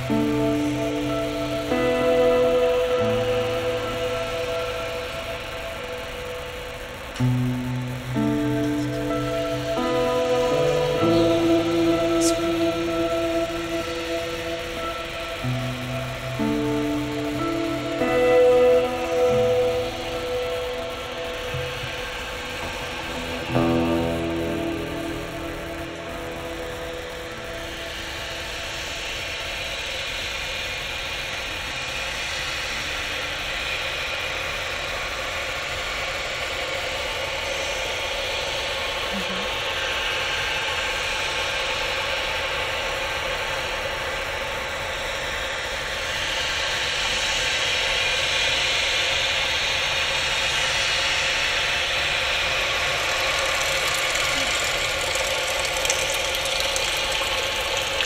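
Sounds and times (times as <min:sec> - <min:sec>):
electro-acoustic drone: 0:00.0 - 0:58.0
hiss: 0:26.5 - 0:58.0.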